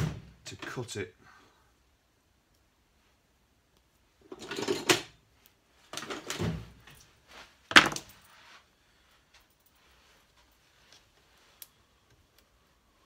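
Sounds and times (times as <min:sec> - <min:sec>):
rustling and scraping: 0:05.7 - 0:11.8.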